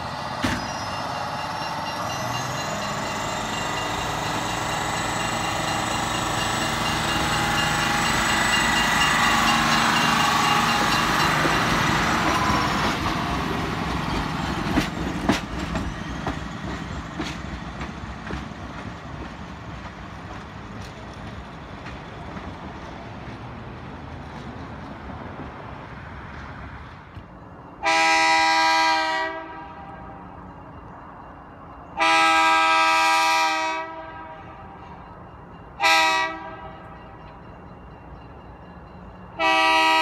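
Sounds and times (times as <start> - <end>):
diesel rail car engine whine: 0.0 - 40.0
wheels clicking over rail joints: 1.7 - 23.5.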